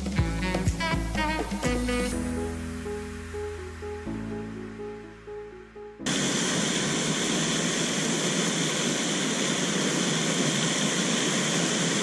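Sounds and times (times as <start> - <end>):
fountain water rushing: 6.0 - 12.0.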